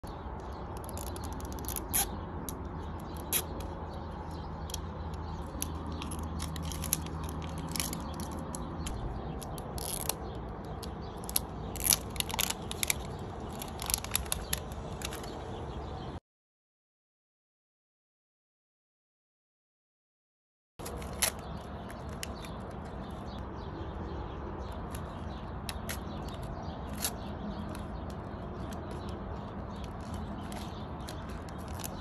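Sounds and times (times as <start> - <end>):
plastic wrapper crinkling: 5.4 - 8.8, 9.5 - 15.2.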